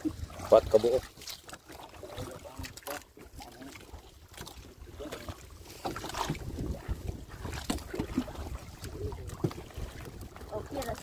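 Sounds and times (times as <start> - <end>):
water splashing and sloshing: 0.0 - 11.0
wind buffeting microphone: 4.8 - 11.0.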